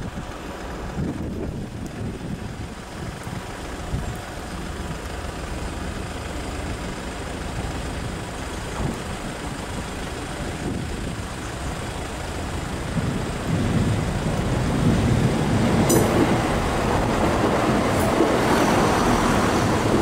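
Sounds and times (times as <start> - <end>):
diesel train rumble: 0.0 - 20.0.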